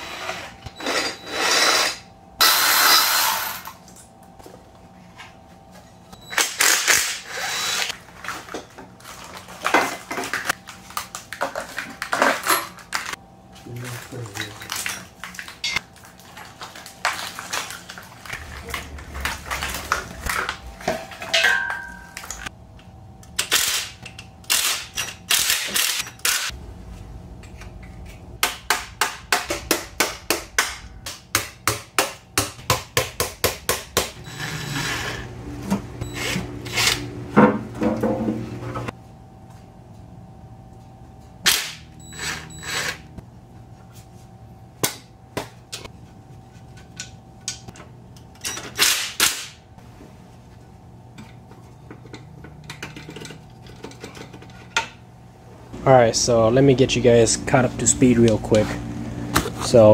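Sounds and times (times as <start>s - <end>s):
metal clanks and rattles: 51.2s - 55.0s.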